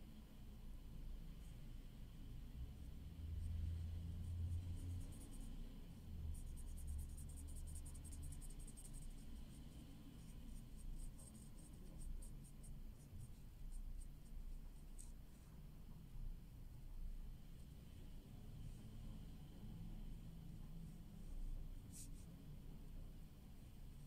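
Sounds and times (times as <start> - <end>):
faint low hum: 0.0 - 24.0
marker pen scratching on paper: 6.3 - 15.2, 21.8 - 22.3.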